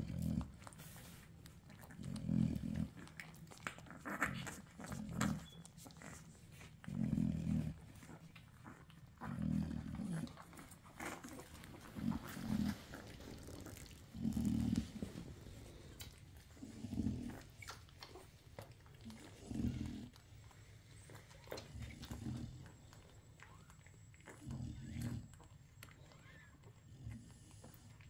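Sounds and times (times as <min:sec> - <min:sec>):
puppies suckling clicks: 0:00.1 - 0:07.0, 0:07.7 - 0:28.0
dog grunting: 0:01.8 - 0:20.4.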